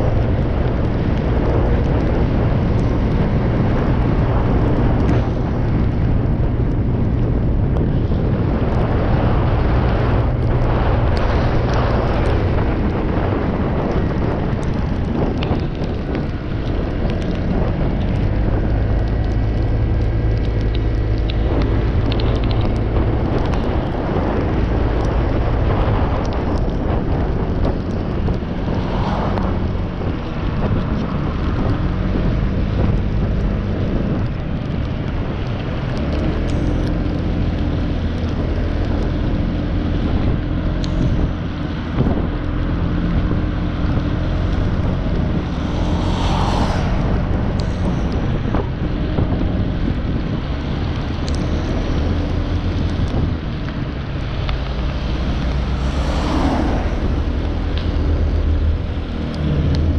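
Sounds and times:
wind noise on microphone: 0.0s - 59.9s
tyre hiss on wet road: 44.2s - 48.3s, 54.4s - 57.7s.

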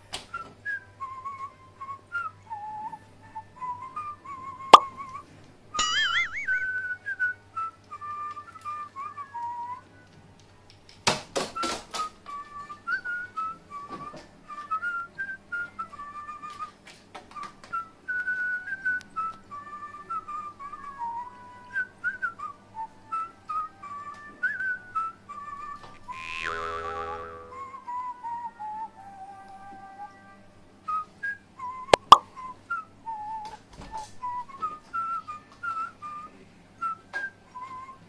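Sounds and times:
whistled tune: 0.3s - 10.1s, 11.5s - 38.0s
loud sound falling in pitch: 5.8s - 6.8s, 26.1s - 27.7s.

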